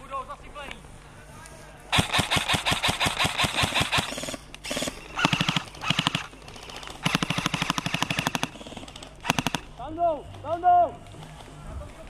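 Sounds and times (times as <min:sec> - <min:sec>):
airsoft guns firing full-auto bursts: 0:01.9 - 0:09.9.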